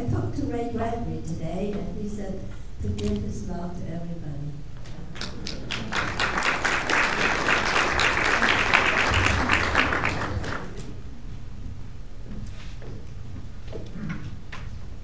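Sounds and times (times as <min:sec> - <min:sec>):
audience applauding: 0:05.1 - 0:10.9.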